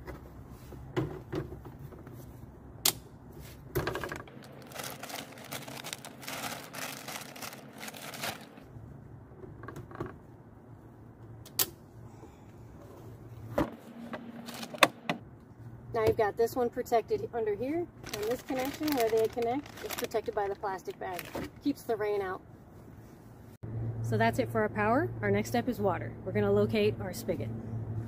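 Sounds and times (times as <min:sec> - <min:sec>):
plastic bag rustling: 0:04.2 - 0:08.7, 0:14.4 - 0:14.9, 0:18.0 - 0:21.7.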